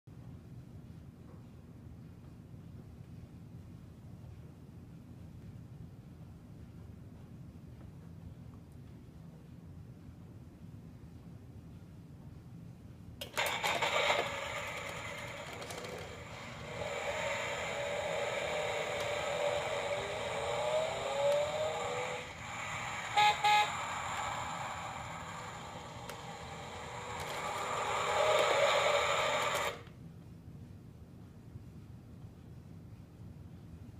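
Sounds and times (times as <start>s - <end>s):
small car engine revving: 13.4s - 29.8s
car horn toots: 22.9s - 24.5s.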